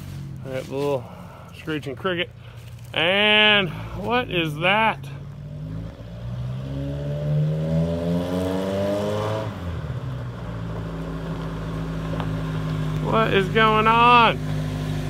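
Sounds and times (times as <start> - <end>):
truck engine revving: 2.4 - 10.1.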